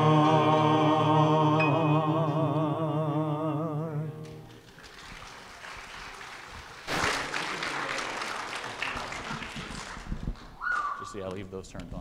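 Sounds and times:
congregation applauding: 4.5 - 11.0.

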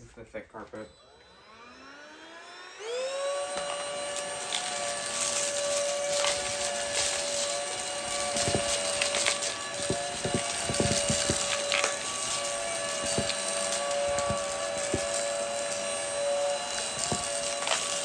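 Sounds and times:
stick vacuum motor whine: 0.5 - 18.0
debris clicking and rattling: 4.1 - 18.0.

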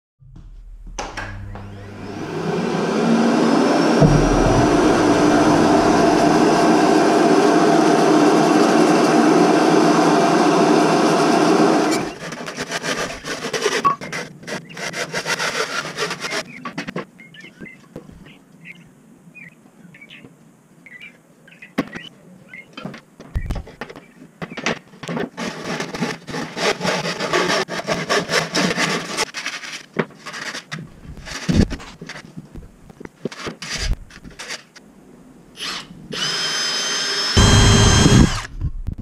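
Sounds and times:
wood knocking: 4.0 - 6.3
hand saw cutting wood: 11.0 - 16.6, 25.4 - 29.6, 35.6 - 38.5
cordless drill whining: 11.1 - 12.2, 35.6 - 38.6.

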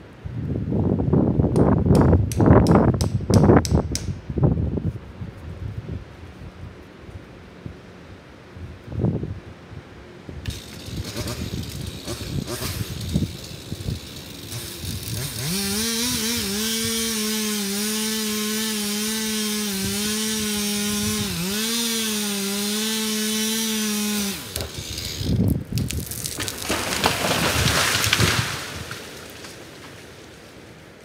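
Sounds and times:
chainsaw at full throttle: 10.5 - 25.5
tree cracking and crashing down: 24.5 - 30.5.

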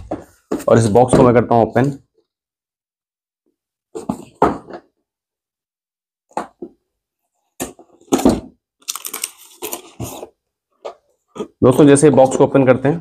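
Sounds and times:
cardboard packaging being opened: 7.9 - 10.4.

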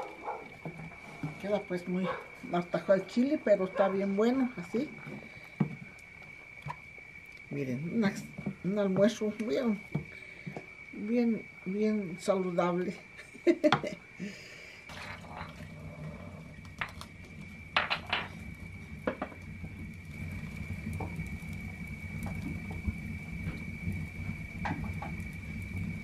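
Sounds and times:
stew simmering: 0.0 - 26.0
wooden spoon scraping clay pot: 0.6 - 1.6.

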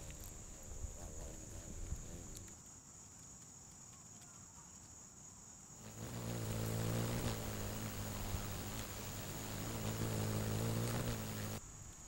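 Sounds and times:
insects trilling: 0.0 - 12.0
low hum: 5.8 - 11.6.

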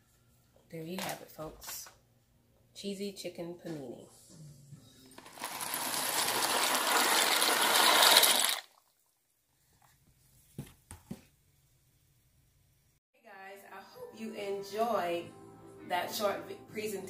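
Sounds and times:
dry pasta pouring into pan: 5.2 - 8.8.

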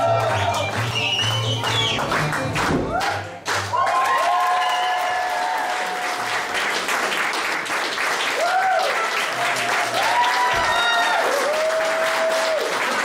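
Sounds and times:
cheering calls: 0.0 - 2.0, 2.9 - 6.5, 8.4 - 13.0
audience clapping: 0.0 - 13.0.

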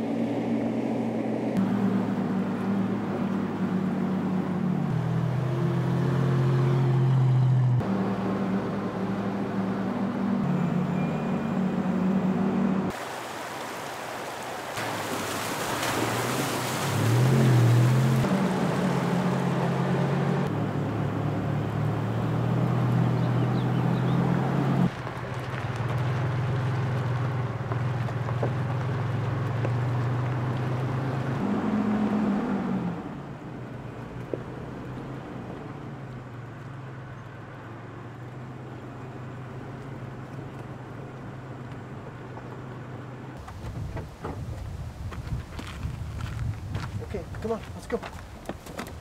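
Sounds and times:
water splashing around tyres: 12.9 - 19.8, 24.9 - 31.4.

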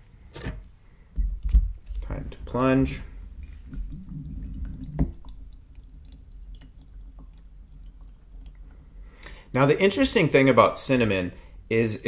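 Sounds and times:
coffee trickling and dripping: 1.2 - 10.6.

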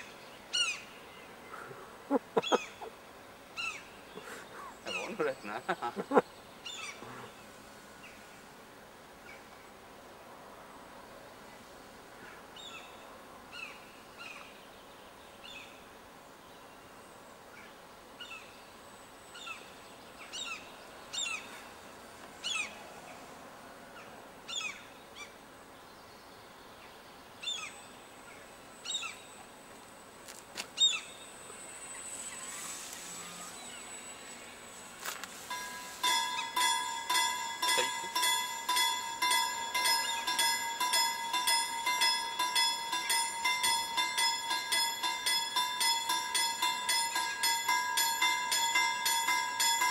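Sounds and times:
faint steady high whine: 24.2 - 49.9
gulls calling: 35.5 - 49.9.

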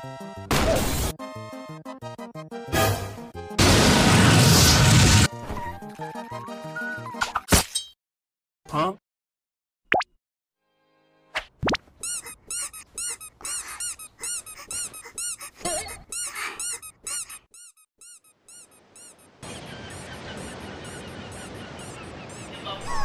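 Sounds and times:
cartoon squeaky chirps: 11.6 - 19.4.

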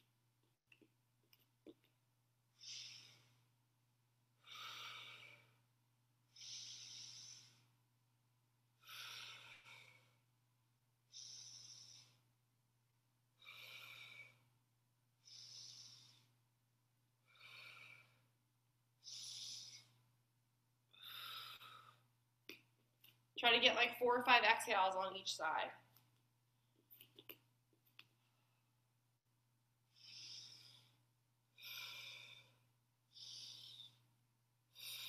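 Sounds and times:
person breathing deeply: 4.4 - 5.6, 6.3 - 7.8, 11.1 - 12.3, 15.2 - 16.4, 19.0 - 20.0, 29.9 - 34.0.

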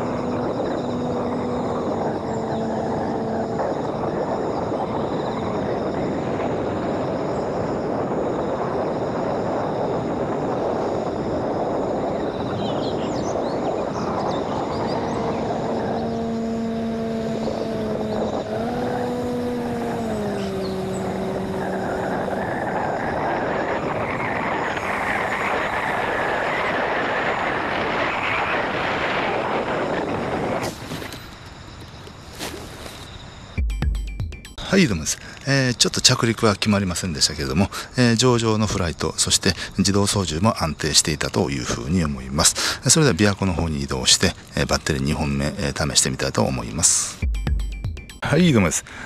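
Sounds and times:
model airplane motor buzzing: 0.0 - 6.3, 14.1 - 27.0
steady rushing noise: 0.0 - 31.7.

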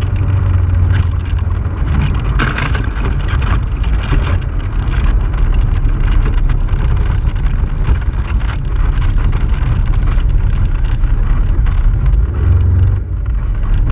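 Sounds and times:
knocks and rattles: 0.0 - 13.9
low engine rumble: 0.0 - 13.9.

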